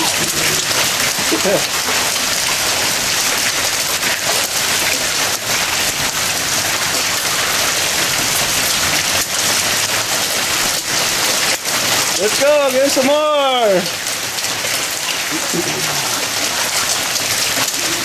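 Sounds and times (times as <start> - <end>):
rain and hail falling: 0.0 - 18.0.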